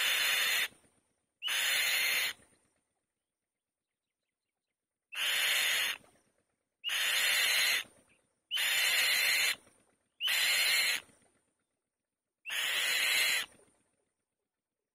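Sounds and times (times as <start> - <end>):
bird of prey screeching: 0.0 - 0.7, 1.4 - 2.4, 5.1 - 6.0, 6.8 - 7.9, 8.5 - 9.6, 10.2 - 11.0, 12.5 - 13.5.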